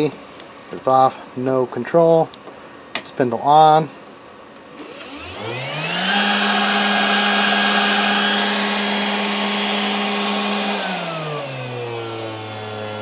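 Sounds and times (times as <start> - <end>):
spindle motor whine: 4.7 - 13.0.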